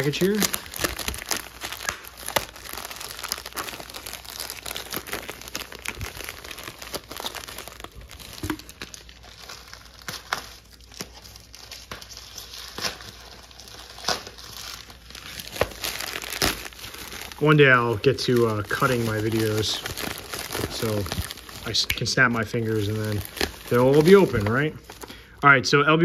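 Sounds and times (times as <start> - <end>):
plastic packaging crinkling: 0.0 - 25.4.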